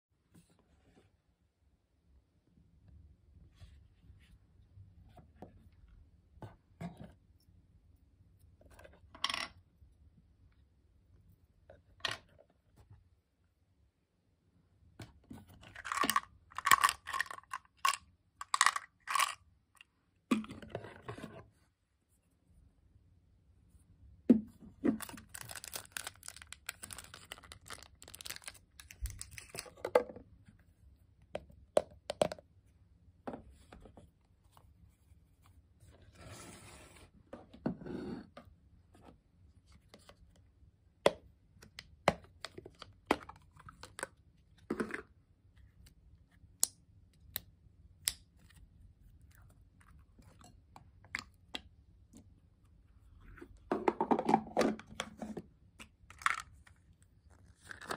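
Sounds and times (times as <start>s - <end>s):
plastic rustling: 25.0s - 29.7s.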